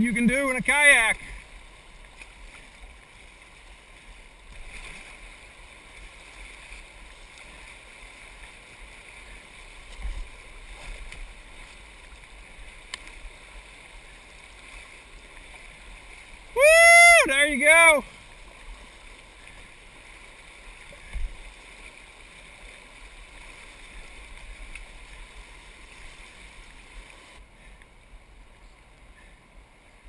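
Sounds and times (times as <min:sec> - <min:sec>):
fast water rushing: 0:00.0 - 0:27.8
person whooping: 0:16.6 - 0:18.0.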